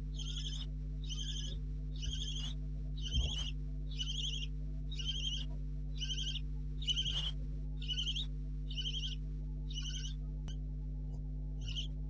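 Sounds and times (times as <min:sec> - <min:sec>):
low electrical hum: 0:00.0 - 0:12.0
owlets hissing begging calls: 0:00.2 - 0:02.5, 0:03.1 - 0:05.4, 0:06.0 - 0:10.1.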